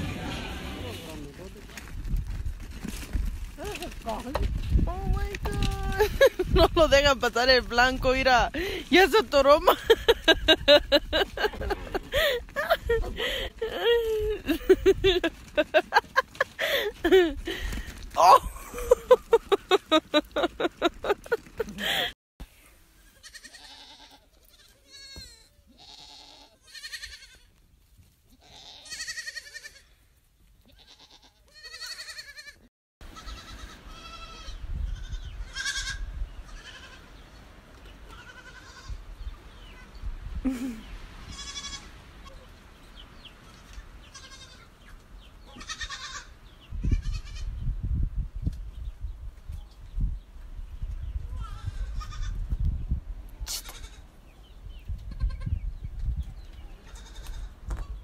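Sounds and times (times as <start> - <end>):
young goats bleating: 11.4 - 15.1, 23.0 - 27.5, 28.3 - 30.0, 30.6 - 37.2, 38.0 - 40.6, 41.2 - 42.4, 43.5 - 47.6, 51.3 - 52.5, 53.4 - 54.1, 55.1 - 55.6, 56.7 - 57.6.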